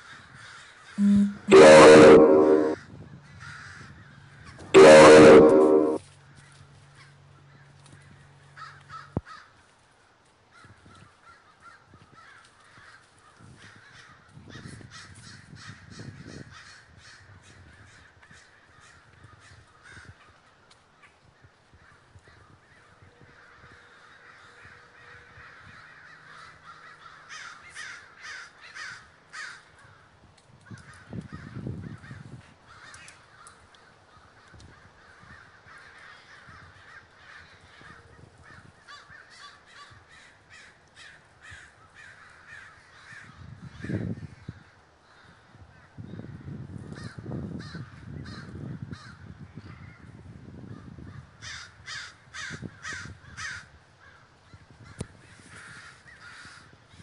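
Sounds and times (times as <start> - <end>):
flock of crows cawing: 0.0 - 1.0, 3.2 - 4.6, 7.5 - 9.6, 10.5 - 20.4, 21.7 - 30.1, 30.7 - 50.1, 51.0 - 57.0.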